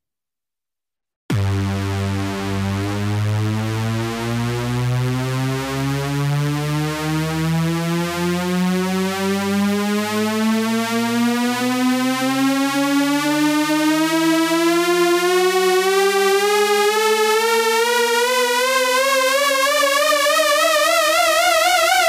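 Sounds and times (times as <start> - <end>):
buzzy synthesizer tone gliding upward: 1.3 - 8.2
steady low bass tone: 1.3 - 8.6.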